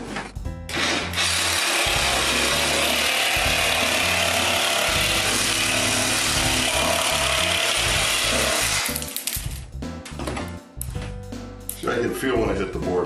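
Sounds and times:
reciprocating saw cutting: 0.7 - 9.0.

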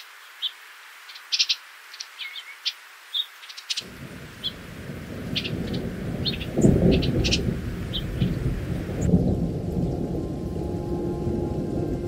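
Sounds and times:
small birds chirping: 0.0 - 10.2
thunder rumbling: 3.8 - 12.0.

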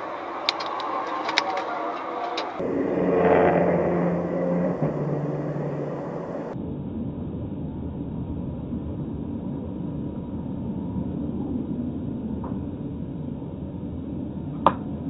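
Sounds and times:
car road and tyre rumble: 0.0 - 6.6.

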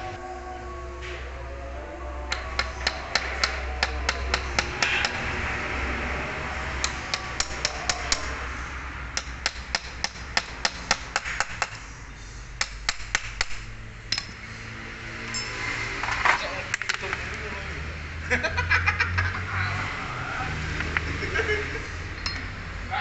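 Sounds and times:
hammer tapping steel drift: 2.3 - 5.3, 6.8 - 8.4, 9.1 - 11.8, 12.6 - 14.5.

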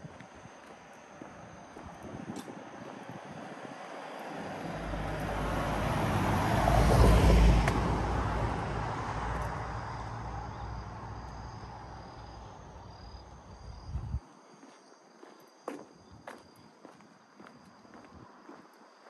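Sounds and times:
vehicle driving past: 3.9 - 12.8.

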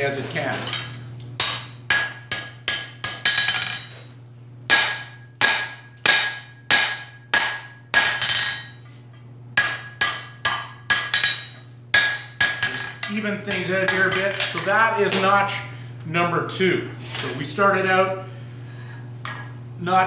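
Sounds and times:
hammer striking hot steel on anvil: 1.4 - 4.0, 4.7 - 8.8, 9.6 - 15.3.

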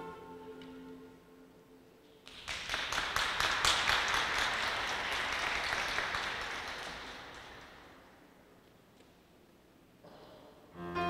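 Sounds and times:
audience applauding: 2.3 - 8.0.

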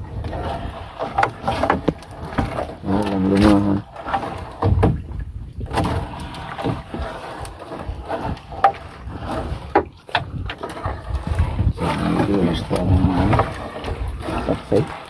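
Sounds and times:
wind and water rumble: 0.0 - 15.0
net and fish knocking on hull: 1.0 - 7.0.

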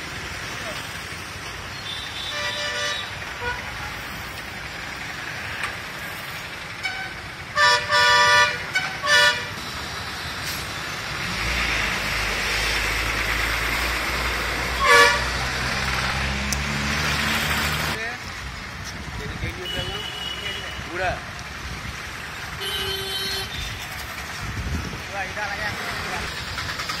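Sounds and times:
road noise: 0.0 - 27.0
vehicle horn toots: 1.8 - 3.7, 6.8 - 9.5, 14.8 - 15.3, 19.6 - 21.0, 22.6 - 23.8.

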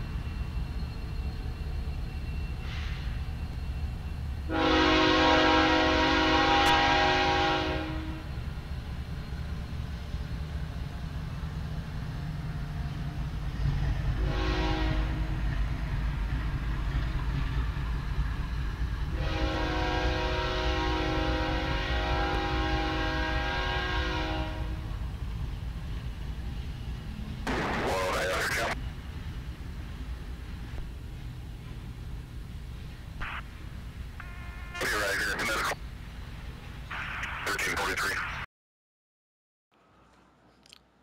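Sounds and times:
diesel freight train rumbling: 0.0 - 38.2
locomotive air horn blasts: 4.5 - 8.3, 14.2 - 15.3, 19.1 - 24.8, 34.2 - 34.8.

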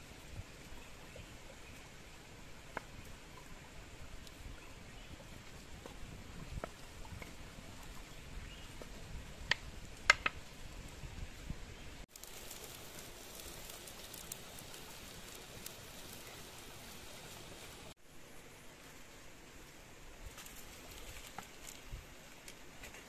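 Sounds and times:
food crackling in a wok: 12.0 - 18.0.

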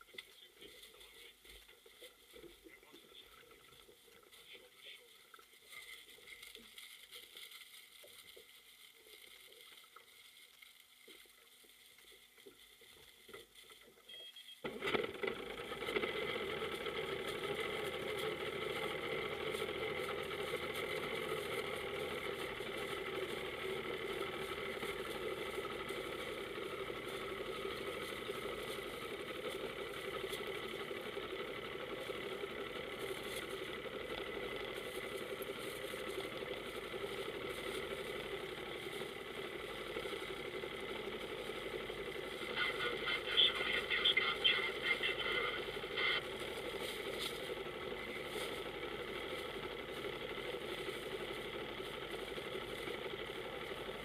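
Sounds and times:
powerboat engine idling: 14.7 - 54.0.

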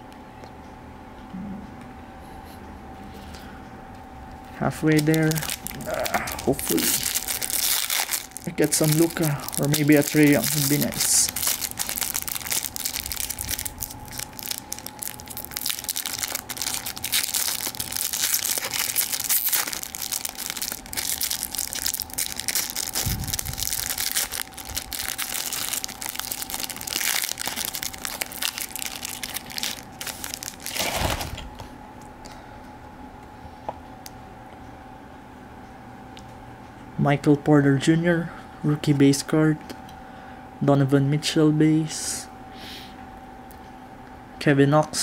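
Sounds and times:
faint steady hum: 0.0 - 45.0
foil wrapper crinkling: 4.8 - 31.6.

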